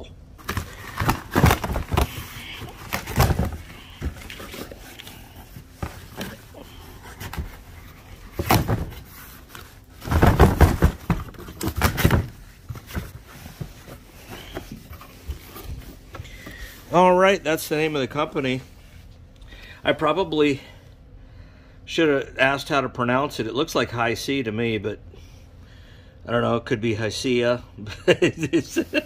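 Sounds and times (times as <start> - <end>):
packing tape tearing off cardboard: 0.4 - 13.3
cardboard flaps rustling: 0.4 - 17.1.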